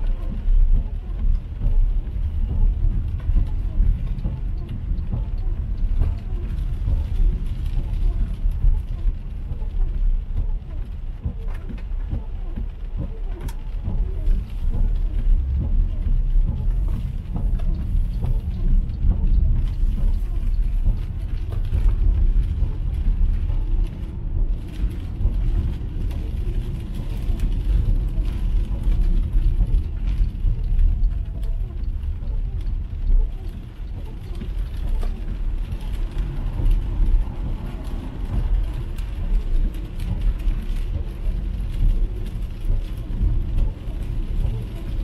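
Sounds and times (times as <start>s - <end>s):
rain ticking on windscreen: 0.0s - 45.0s
tyre and road rumble: 0.0s - 45.0s.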